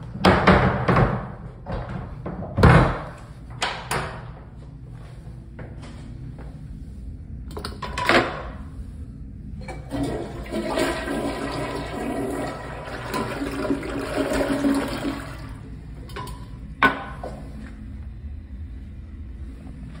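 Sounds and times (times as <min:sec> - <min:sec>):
water running quietly: 0:09.6 - 0:16.7
toilet flushing water rush: 0:09.7 - 0:16.0.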